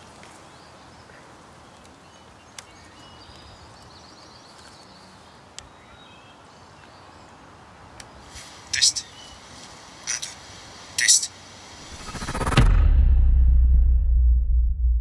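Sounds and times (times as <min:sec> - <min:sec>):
steady background hiss: 0:00.0 - 0:12.1
faint bird chirps: 0:08.7 - 0:09.5.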